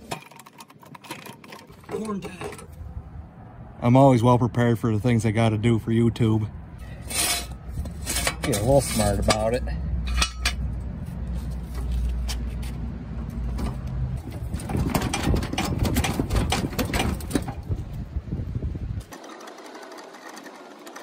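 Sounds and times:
fast rattling and clatter: 0:14.2 - 0:17.8, 0:19.0 - 0:21.0.

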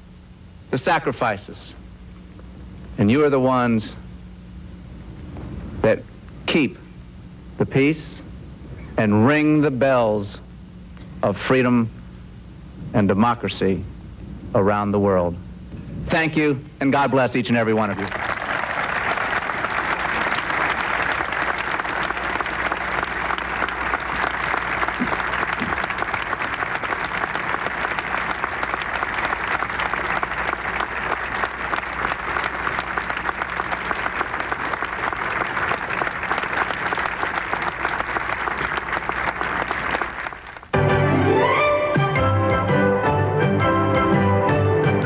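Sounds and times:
crowd applauding: 0:17.9 - 0:40.7.

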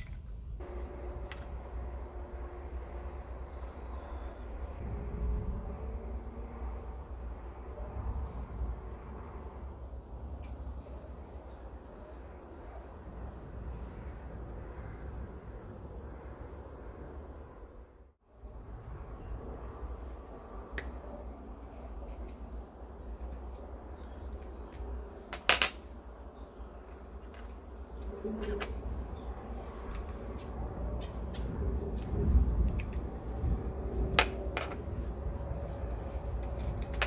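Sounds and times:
steady low hum: 0:00.0 - 0:25.4
sharp metallic clink: 0:25.3 - 0:26.1.

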